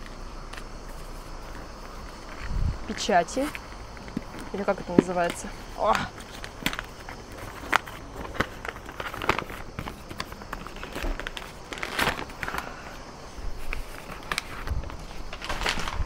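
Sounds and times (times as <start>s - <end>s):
wrapping paper rustling: 5.5s - 16.0s.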